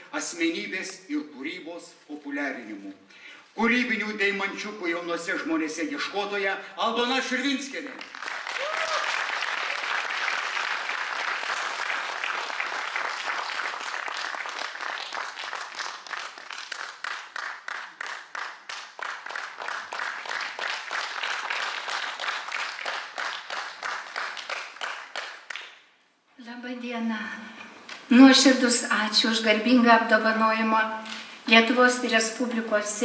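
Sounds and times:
audience applause: 8.0 - 25.8
rhythmic clapping in unison: 8.0 - 25.9.

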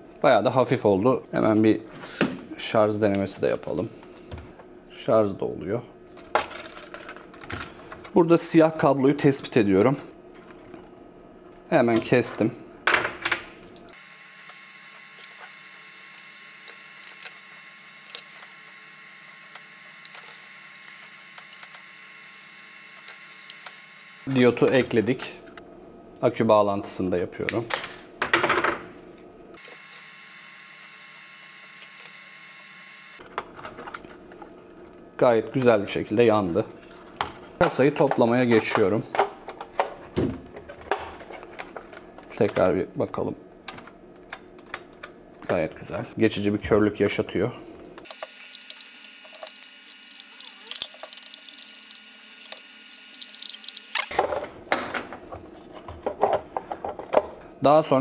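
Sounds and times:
gloved hands rustling wires: 48.1 - 54.1
plastic housing clicking and rattling: 48.1 - 54.1.

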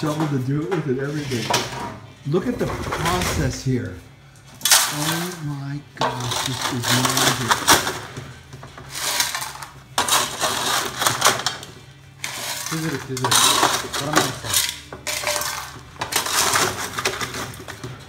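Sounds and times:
gravel scraped on metal: 0.0 - 3.9, 8.8 - 17.6.

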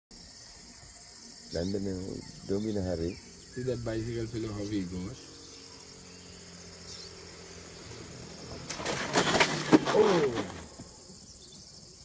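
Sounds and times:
scooter scraping and clattering: 6.9 - 11.6.

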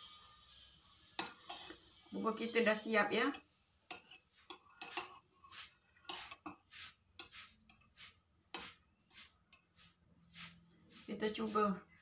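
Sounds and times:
spoon stirring in ceramic bowl: 1.2 - 2.7, 3.3 - 8.9.

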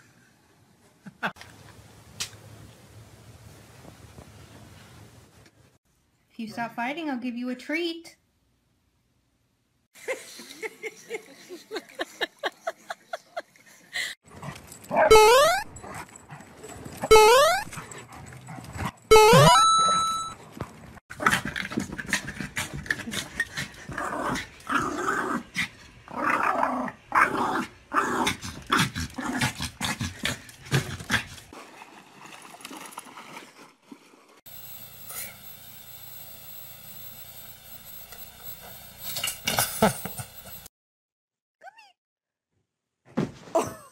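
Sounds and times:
small dog barking and growling: 23.9 - 31.3.

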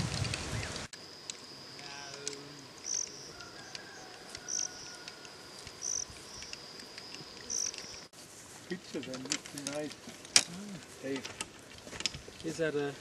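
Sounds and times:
high insect trill: 0.0 - 13.0.

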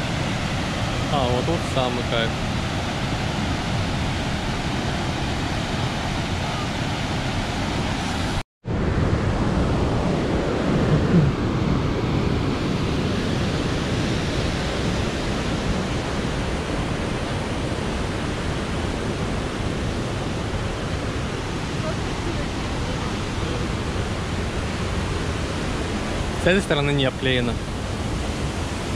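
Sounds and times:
river water rushing: 0.0 - 8.4, 10.0 - 28.9.

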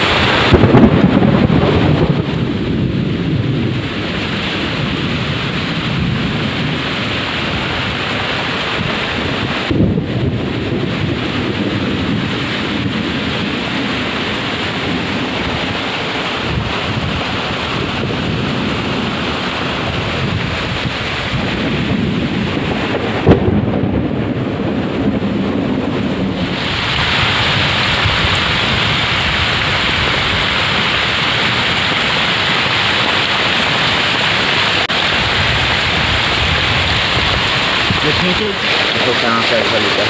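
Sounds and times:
heavy rain pouring: 0.0 - 40.0
thunder crack and rumble: 0.0 - 40.0.

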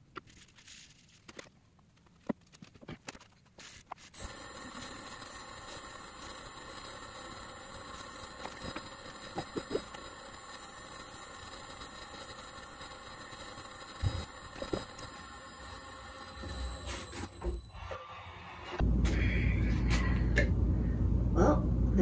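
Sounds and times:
wood lathe motor humming: 4.2 - 18.0.

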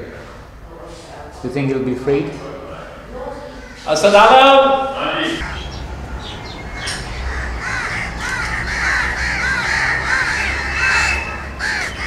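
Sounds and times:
crows cawing: 5.4 - 12.0.

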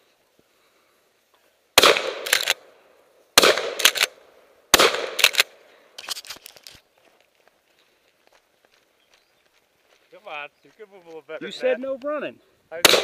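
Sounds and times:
shotgun shots: 1.8 - 2.7, 3.4 - 5.6
shotgun pump being racked: 5.2 - 6.8.

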